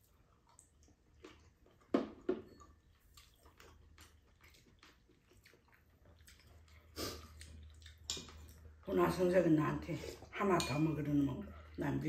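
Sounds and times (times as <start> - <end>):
faint chewing: 0.0 - 9.2
slurping soup from a spoon: 6.6 - 8.4.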